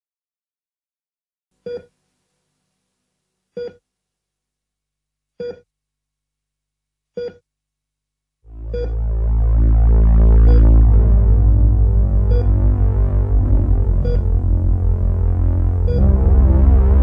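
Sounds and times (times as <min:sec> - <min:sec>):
short electronic beeps: 0:05.4 - 0:05.6, 0:07.2 - 0:07.4, 0:08.7 - 0:09.0.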